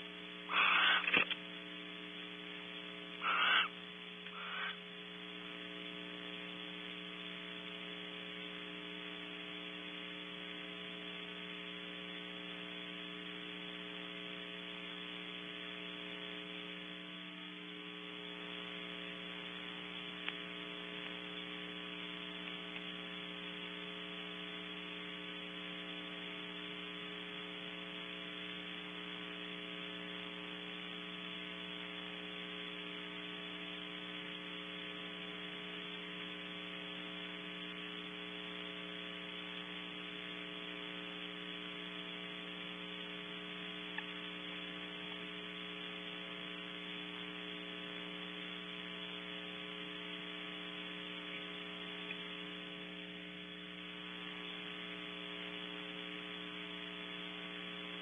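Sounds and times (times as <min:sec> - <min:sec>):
constant hiss: 0:00.0 - 0:58.0
electrical hum with buzz: 0:00.0 - 0:58.0
faint click: 0:20.2 - 0:21.5, 0:22.4 - 0:22.9, 0:43.9 - 0:44.2, 0:51.3 - 0:52.3.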